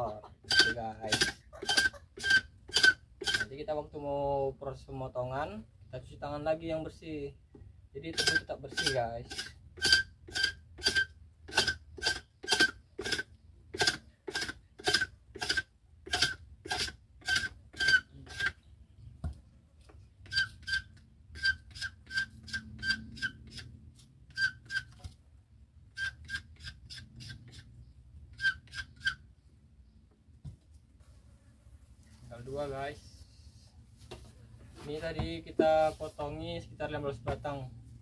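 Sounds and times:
scraper rasping sugarcane rind: 0.4 - 3.5, 8.2 - 18.6, 20.3 - 23.7, 24.3 - 25.0, 28.4 - 29.2.

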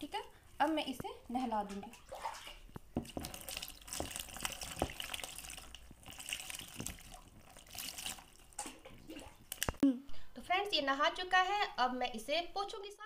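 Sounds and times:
water splashing into tub: 1.5 - 9.8.

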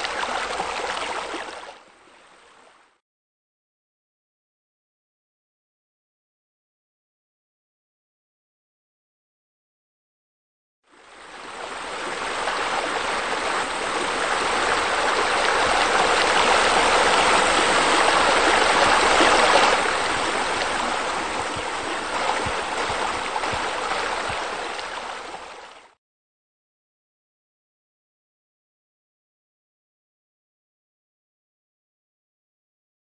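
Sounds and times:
waterfall splashing into pool: 12.2 - 26.0.

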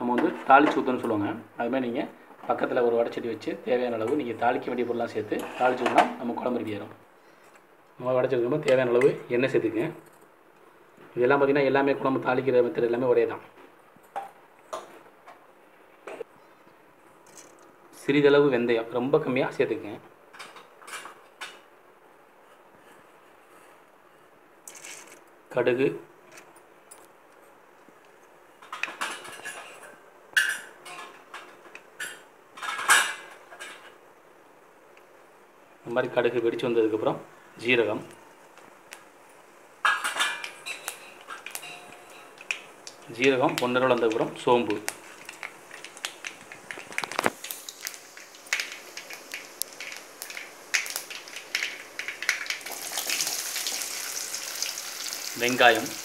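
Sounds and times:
seeds popping in hot oil: 40.5 - 56.0
seeds ticking against metal pan: 40.9 - 56.0.

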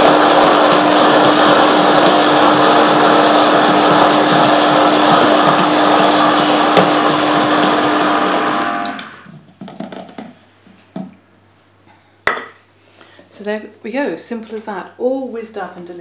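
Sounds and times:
blender running: 0.0 - 9.3.

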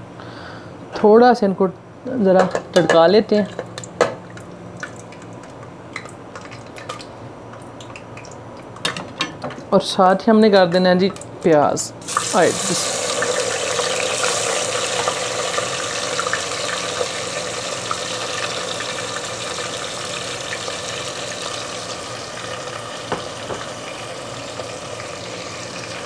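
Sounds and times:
onions sizzling in hot oil: 12.0 - 26.0.

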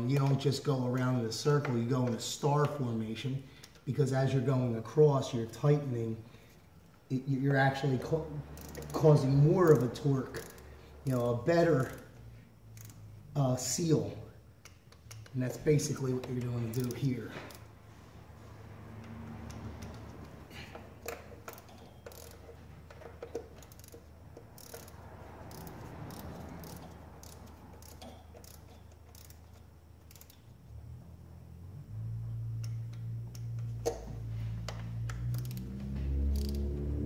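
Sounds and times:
ratchet wrench clicking: 8.4 - 13.4, 14.6 - 17.8, 18.9 - 30.7, 32.4 - 36.9.

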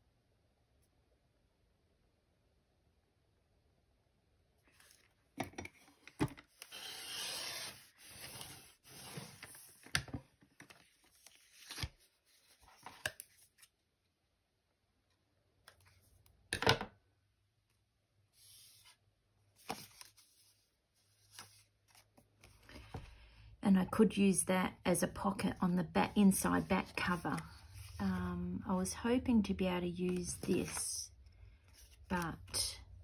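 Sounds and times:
paper rustling: 26.6 - 28.2, 30.1 - 32.2.

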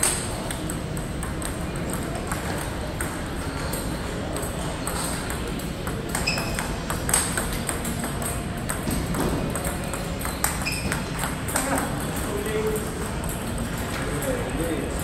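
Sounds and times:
table tennis ball clicks: 0.0 - 14.2
murmur of large hall: 0.0 - 15.0.

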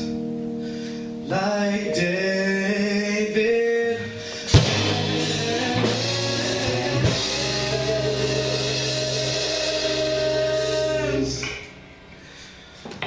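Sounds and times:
live band playing gospel: 4.2 - 11.4
loud drum hit: 4.5 - 10.2.

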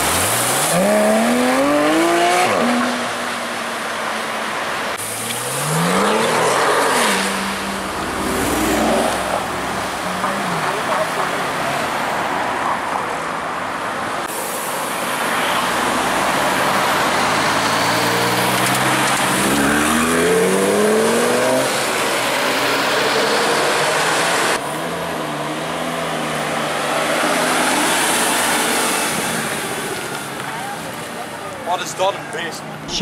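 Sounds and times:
road traffic: 0.0 - 33.0
sports car engine accelerating: 16.2 - 28.3.

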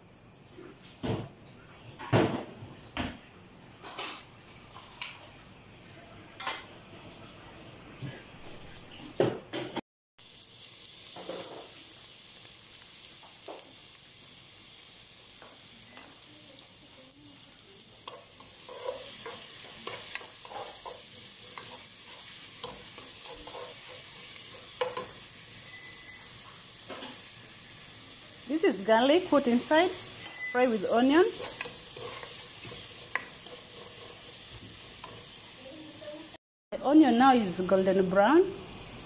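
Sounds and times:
onion sizzling in hot oil: 10.2 - 39.0
spatula scraping a pot: 18.0 - 25.1, 30.0 - 35.4.

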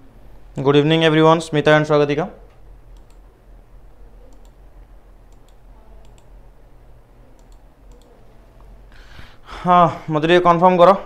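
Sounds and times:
faint low hum: 0.0 - 11.0
computer mouse clicks: 2.5 - 3.2, 4.2 - 4.6, 5.3 - 6.4, 7.4 - 8.7.

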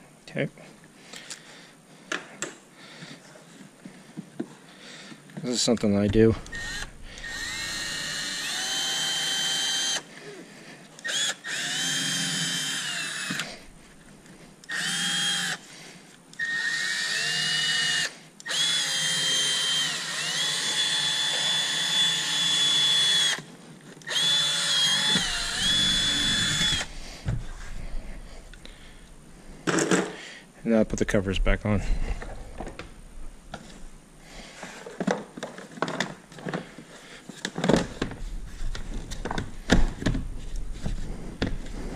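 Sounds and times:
cordless screwdriver motor whine: 6.4 - 10.1, 11.0 - 13.6, 14.7 - 15.6, 16.4 - 27.0.

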